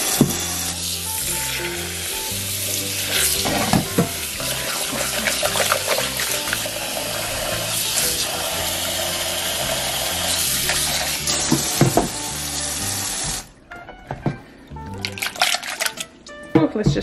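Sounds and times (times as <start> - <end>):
tap water running into a jar: 0.0 - 13.5, 14.9 - 16.1.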